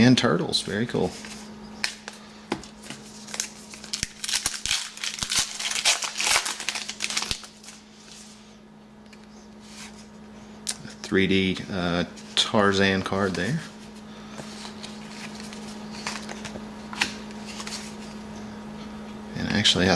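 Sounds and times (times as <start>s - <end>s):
wrapper being torn and crinkled: 3.3s - 7.8s.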